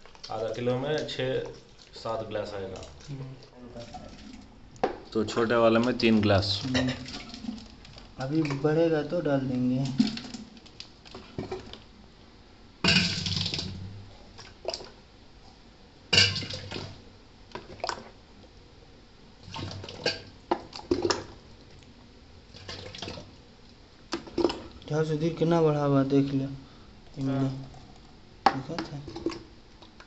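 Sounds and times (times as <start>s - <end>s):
water splashing: 5.8s - 11.8s, 12.8s - 15.0s, 16.1s - 18.2s, 19.4s - 21.7s, 22.5s - 23.5s, 27.2s - 30.0s.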